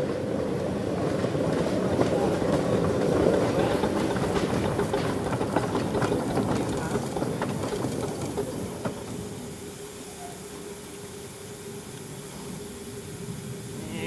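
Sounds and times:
steam locomotive clanking and rattling: 0.0s - 10.5s
faint steady hum: 8.6s - 14.0s.

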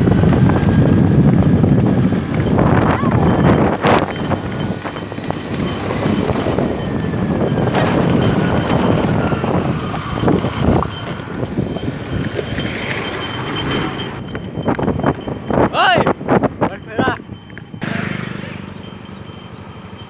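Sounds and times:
wind on the microphone: 0.0s - 17.8s
motorbike engine: 0.0s - 20.0s.

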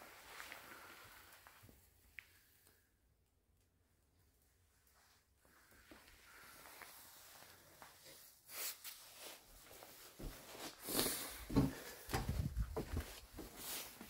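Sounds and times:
footsteps on wooden floor: 10.2s - 10.7s, 11.4s - 14.0s
wind buffeting microphone: 12.2s - 12.8s.

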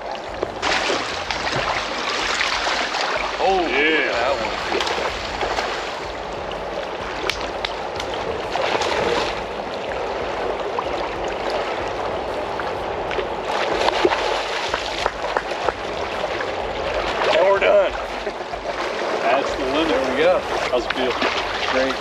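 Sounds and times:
river water rushing: 0.0s - 22.0s
small splashes and clicks: 7.2s - 9.4s.

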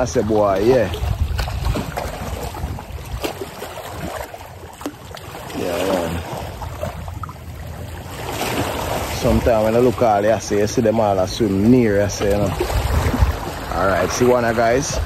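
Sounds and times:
wind on microphone: 0.0s - 4.3s, 11.2s - 15.0s
waves lapping on rocks: 0.0s - 15.0s.

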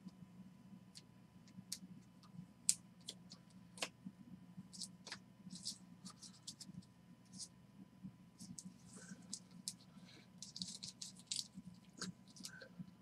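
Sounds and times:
faint low hum: 0.0s - 13.0s
cards clicking and rustling: 4.8s - 6.7s, 10.4s - 12.6s.

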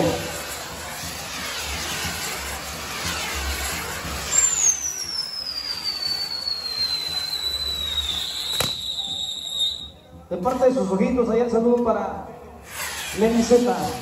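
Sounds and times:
firework crack: 0.0s - 10.6s
spinning firework wheel hissing: 0.0s - 11.0s, 12.6s - 14.0s
falling firework whistle: 0.4s - 10.2s.

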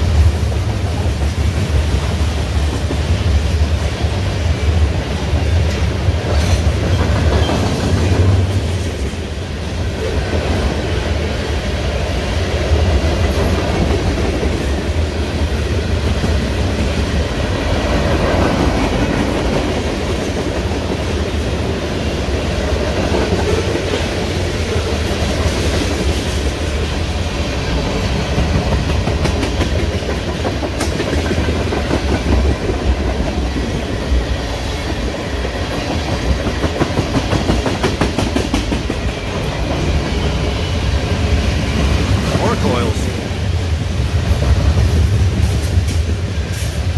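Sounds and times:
freight train rumbling past: 0.0s - 46.9s
wheels clacking over rail joints: 27.9s - 34.0s.

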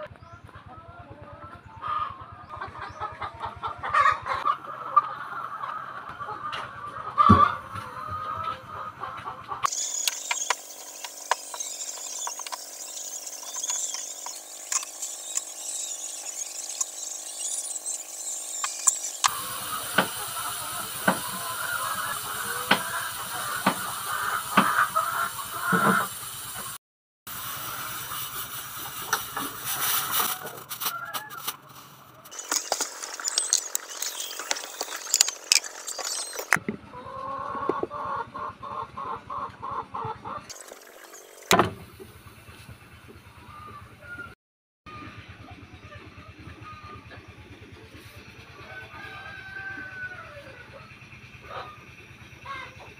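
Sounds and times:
pulsing pitched tone: 9.7s - 24.4s, 32.2s - 36.6s.

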